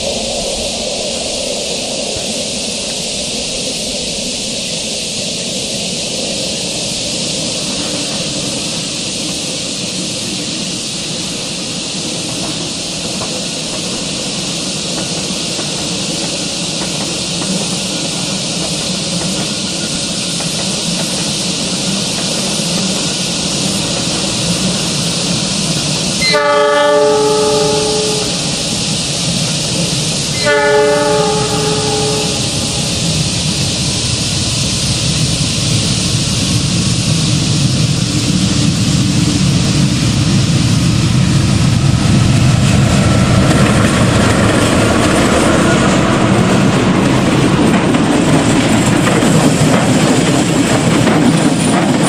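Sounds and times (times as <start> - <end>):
distant locomotive rumble: 0.0 - 52.0
steady hiss: 0.0 - 52.0
train horn: 26.2 - 28.9, 30.3 - 33.2.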